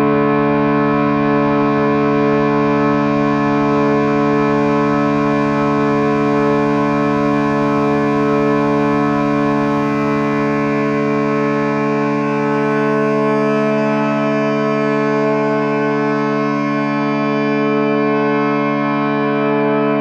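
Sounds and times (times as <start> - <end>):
ambient drone music: 0.0 - 20.0.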